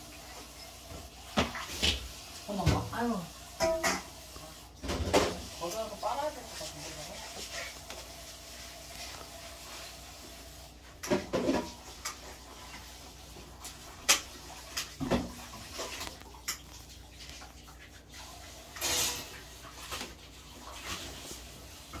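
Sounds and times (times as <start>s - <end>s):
dishes and utensils clinking: 3.6s - 4.2s, 18.8s - 19.4s.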